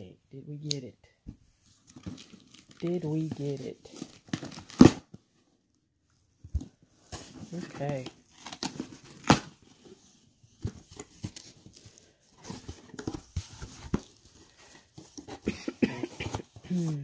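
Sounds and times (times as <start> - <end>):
cardboard snapping: 4.2 - 5.1, 8.0 - 9.5.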